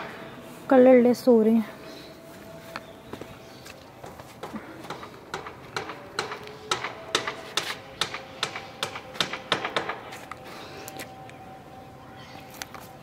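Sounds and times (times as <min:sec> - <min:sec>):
sharp clicking footsteps: 0:02.7 - 0:11.1.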